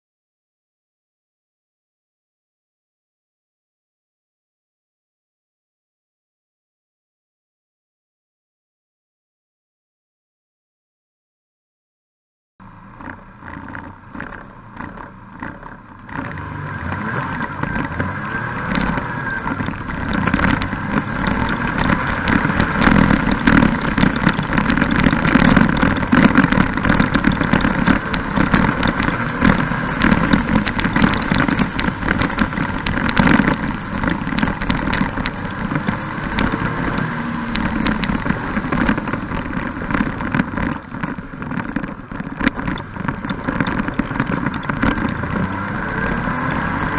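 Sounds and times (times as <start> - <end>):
three-cylinder engine running hard: 12.6 - 46.9
wind rushing over camera: 13.0 - 46.9.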